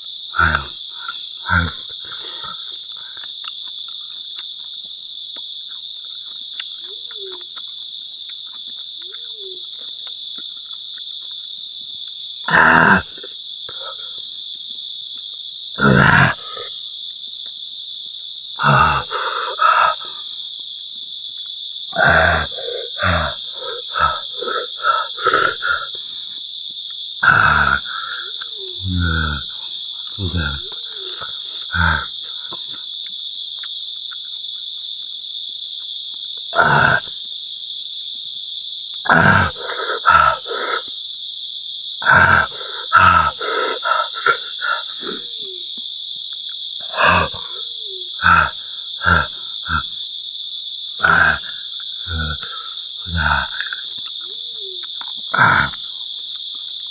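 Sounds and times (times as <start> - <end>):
insects chirping: 0.0 - 56.9
man exhaling and groaning: 0.4 - 3.2, 12.5 - 14.2, 15.8 - 16.8, 18.6 - 20.4, 22.0 - 26.2, 27.2 - 32.8, 36.6 - 37.1, 39.1 - 40.9, 42.0 - 45.6, 46.8 - 50.0, 51.0 - 53.9, 55.3 - 55.9.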